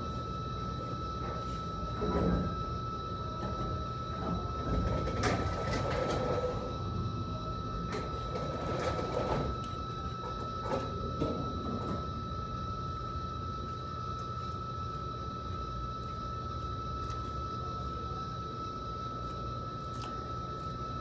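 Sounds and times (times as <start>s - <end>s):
high-pitched whine: 0.0s - 21.0s.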